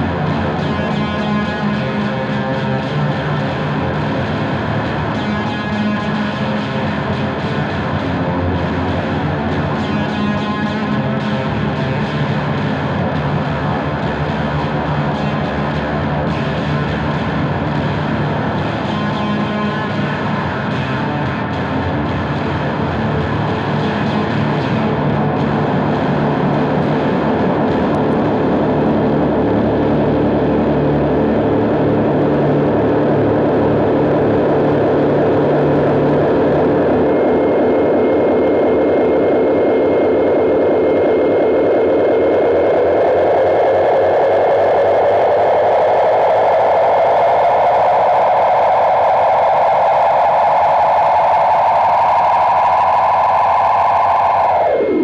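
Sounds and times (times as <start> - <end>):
distorted droning music: 0.0 - 55.0
drone rising in pitch: 22.7 - 55.0.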